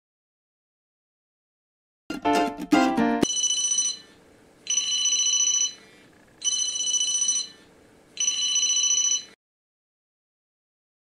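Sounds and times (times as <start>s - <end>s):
mobile phone ringing: 2.3s - 5.8s, 6.4s - 9.4s.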